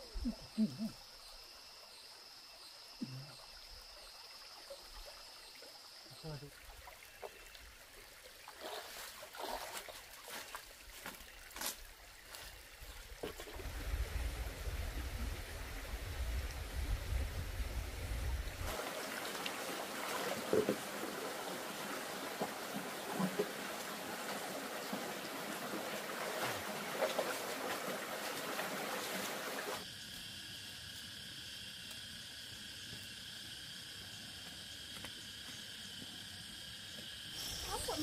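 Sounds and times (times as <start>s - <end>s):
water trickling and splashing: 3.3s - 29.8s.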